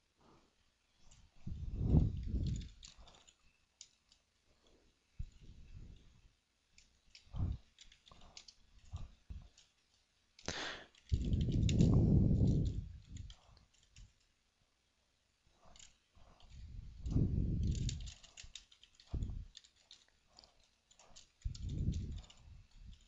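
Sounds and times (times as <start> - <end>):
low muffled rumble: 1.4 - 2.8, 11.1 - 13.4, 16.2 - 18.1, 19.1 - 19.6.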